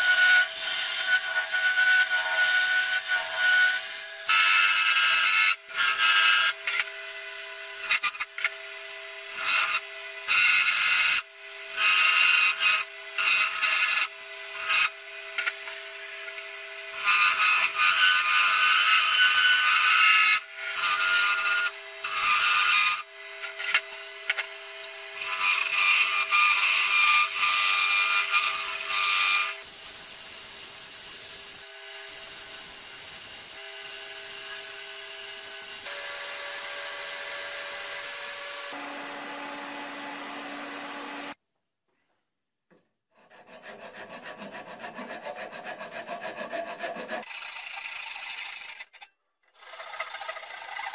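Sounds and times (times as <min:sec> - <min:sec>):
wood lathe humming: 0:33.0 - 0:41.4
gouge scraping spinning wood: 0:43.2 - 0:49.0, 0:49.6 - 0:50.9.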